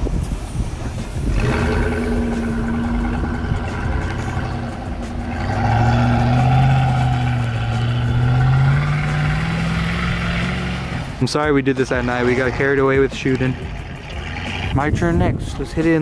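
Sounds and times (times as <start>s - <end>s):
truck engine revving: 1.2s - 15.1s.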